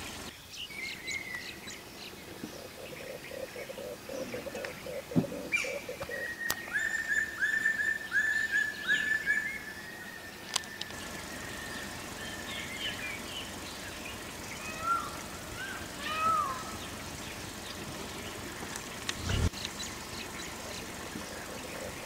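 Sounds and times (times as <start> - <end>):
bird chirps: 0.0 - 22.0
downward-sliding bird calls: 2.4 - 9.8, 10.6 - 22.0
rapid rising bird notes: 10.9 - 22.0.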